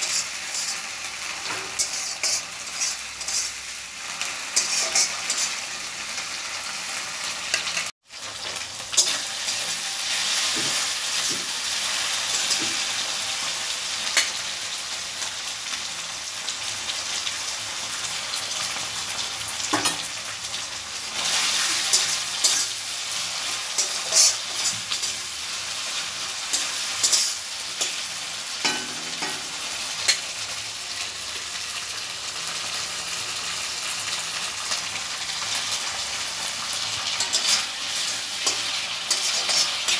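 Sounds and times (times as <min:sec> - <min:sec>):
metal spatula scraping a pan: 0:00.0 - 0:05.8, 0:21.2 - 0:30.5, 0:36.8 - 0:39.9
onion sizzling in oil: 0:00.0 - 0:39.9.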